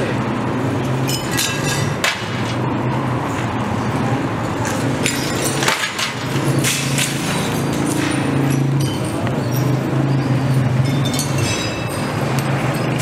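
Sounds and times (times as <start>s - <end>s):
glass cracking and clinking: 10.5s - 13.0s.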